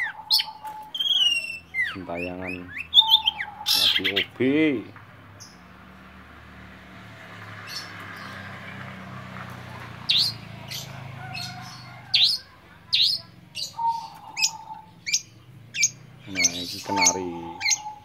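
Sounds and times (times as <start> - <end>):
bird giving sharp high chirps: 0.0 - 4.4, 10.1 - 18.0.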